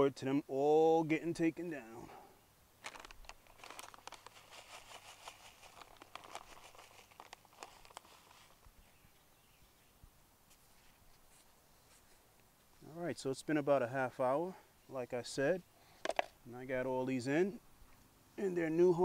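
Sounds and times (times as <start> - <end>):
plastic container crinkling: 2.8 - 8.7.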